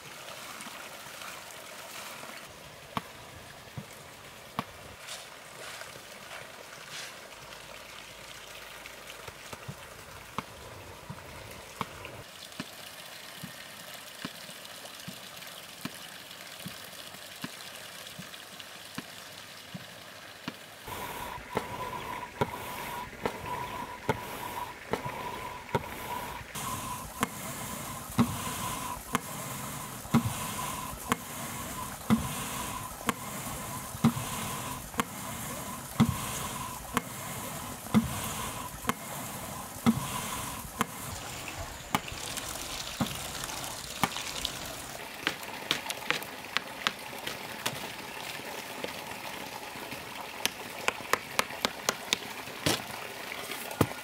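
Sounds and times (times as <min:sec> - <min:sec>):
running water: 0:00.0 - 0:54.0
water-powered hammer pounding: 0:20.9 - 0:47.8.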